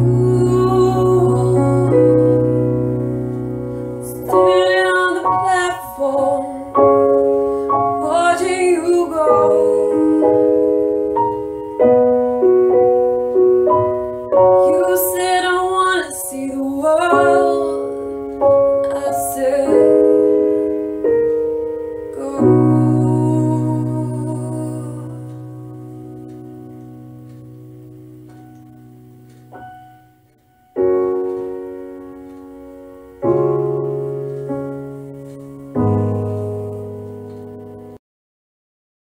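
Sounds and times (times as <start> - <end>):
woman singing: 0.0 - 2.8, 4.0 - 7.1, 7.8 - 10.9, 14.6 - 20.5, 22.1 - 25.3
held piano chords: 0.0 - 38.0.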